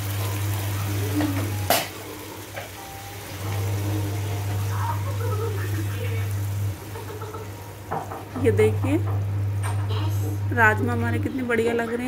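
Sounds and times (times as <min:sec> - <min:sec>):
steady low hum: 0:03.2 - 0:12.0
spatula knocking against pan: 0:07.8 - 0:09.8.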